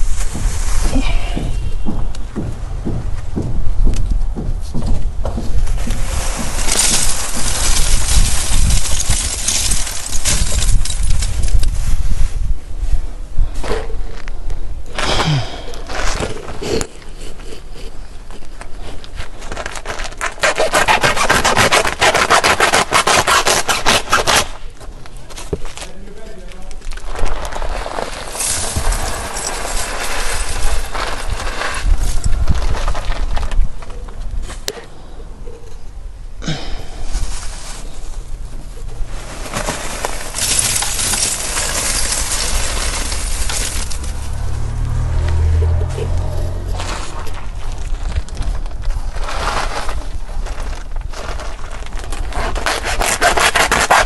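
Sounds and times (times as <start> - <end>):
rustling: 0.0 - 14.4, 15.0 - 34.9, 36.5 - 54.0
charcoal pouring and clinking: 6.6 - 11.4, 28.2 - 31.4, 39.5 - 44.0.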